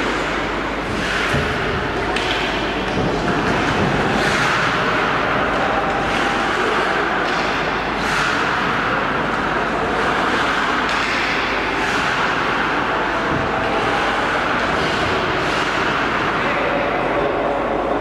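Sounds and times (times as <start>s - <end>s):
steady rushing background noise: 0.0s - 18.0s
skate blades scraping ice: 3.1s - 16.4s.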